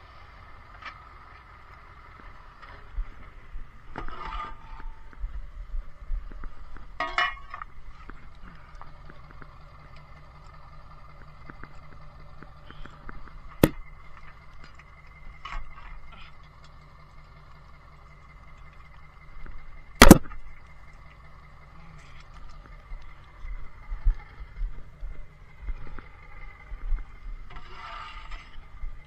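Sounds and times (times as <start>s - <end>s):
truck engine running with whine: 0.0s - 29.0s
sharp metallic bangs: 20.0s - 20.4s.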